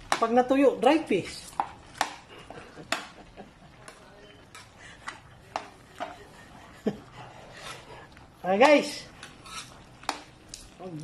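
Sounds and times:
metal ladle scraping metal pan: 8.6 - 10.2.

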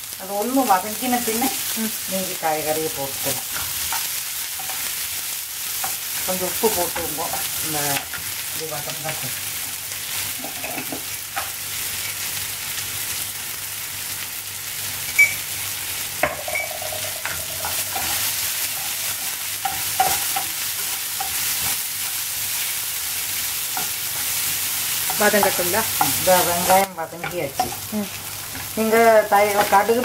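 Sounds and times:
onions sizzling in a frying pan: 0.0 - 30.0
wooden spoon knocking on pan: 16.2 - 18.2.

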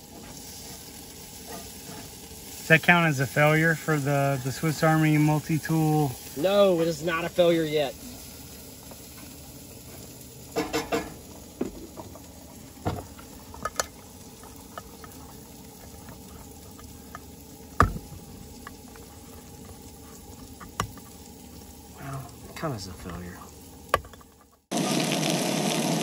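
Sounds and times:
can opener clicking and scraping: 12.8 - 21.2, 23.9 - 24.6.

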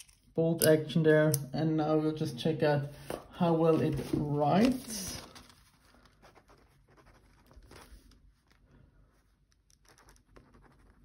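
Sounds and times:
pen scratching on paper: 6.2 - 8.6, 9.8 - 11.0.

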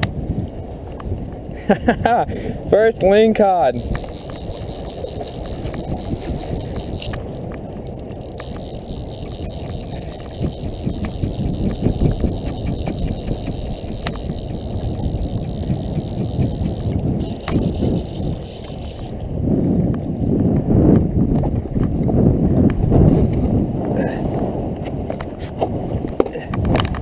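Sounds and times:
wind buffeting the microphone: 0.0 - 27.0
faint clicks: 3.7 - 19.3
microphone handling noise: 8.4 - 18.4.

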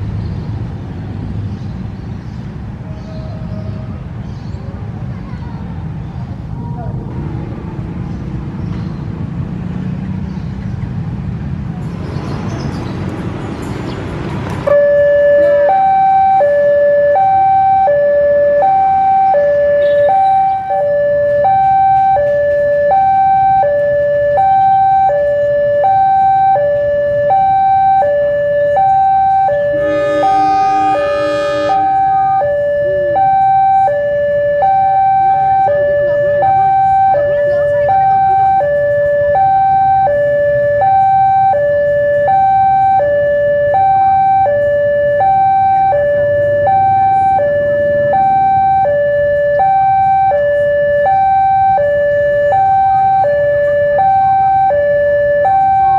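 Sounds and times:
two-tone warning alarm: 14.7 - 55.9
diesel locomotive rumble: 28.3 - 34.0.

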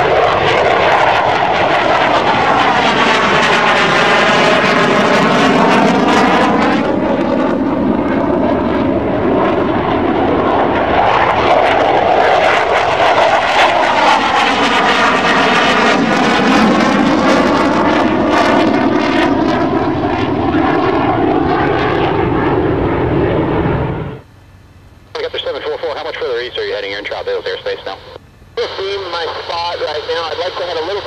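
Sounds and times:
fighter jet flying past: 0.0 - 24.2.

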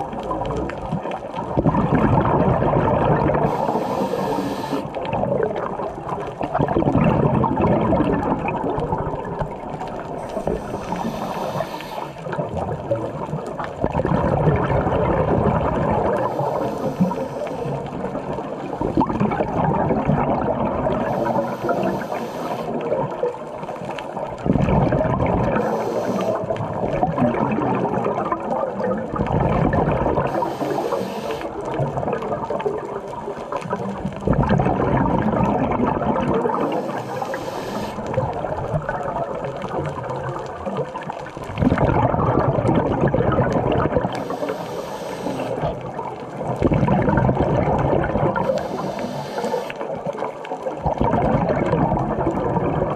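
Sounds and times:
exhaled bubbles rushing: 0.0 - 52.9
hissing regulator inhale: 3.4 - 4.9, 10.2 - 12.3, 16.1 - 17.9, 21.0 - 22.8, 25.5 - 26.5, 30.2 - 31.6, 36.5 - 38.1, 44.1 - 45.7, 48.4 - 50.0.

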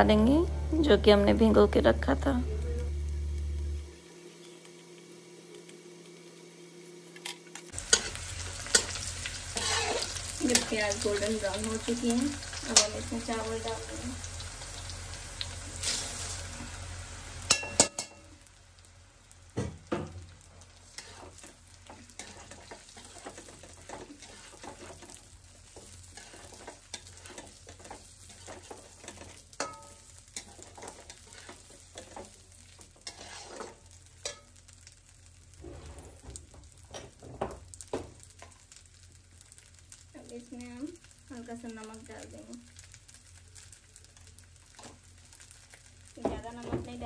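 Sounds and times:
rice frying in oil: 0.0 - 47.0
spatula scraping metal pan: 7.8 - 11.0, 21.0 - 25.1, 33.0 - 34.4.

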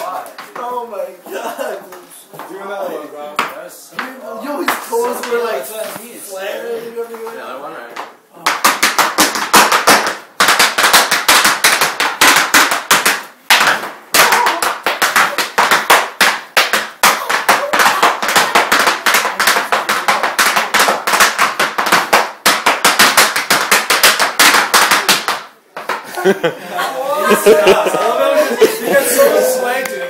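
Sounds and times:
dance steps tapping on floor: 7.1 - 26.1.

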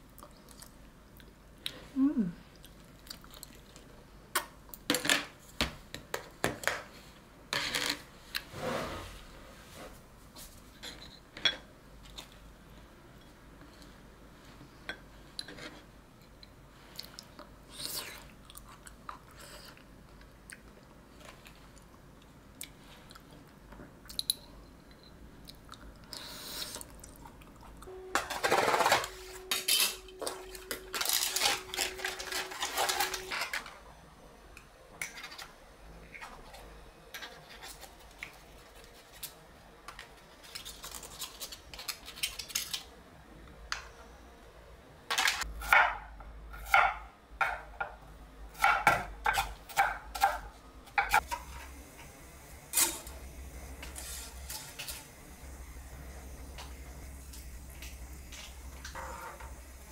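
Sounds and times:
quiet chewing: 0.1 - 1.8, 2.5 - 3.9, 16.2 - 24.4
plastic film crackling: 28.4 - 33.6.

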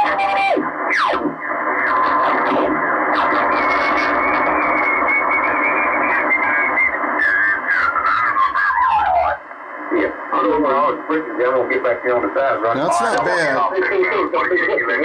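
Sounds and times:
radio band noise hiss: 9.7 - 15.0.

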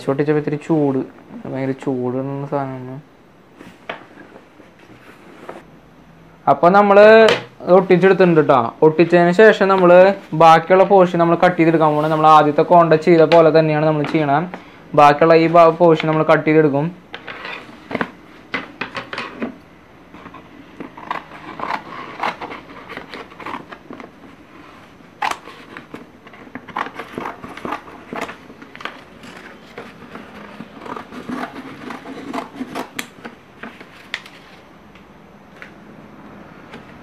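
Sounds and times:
scissors snipping paper: 25.2 - 33.3.

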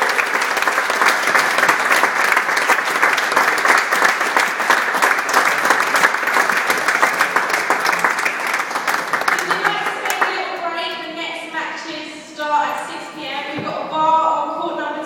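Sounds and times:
crowd applauding: 0.0 - 10.7.

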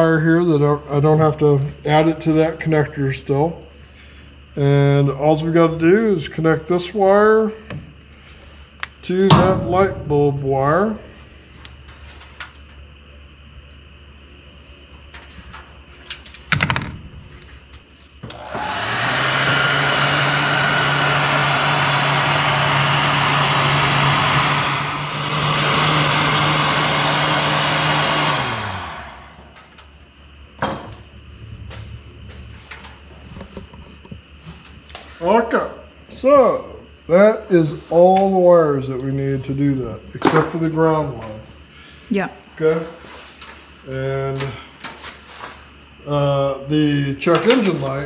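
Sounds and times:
sharp knock: 9.3 - 10.5
heat gun blowing: 18.2 - 29.6.

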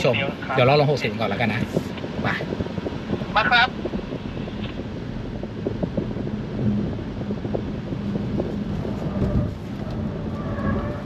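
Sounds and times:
wind: 0.0 - 11.0.

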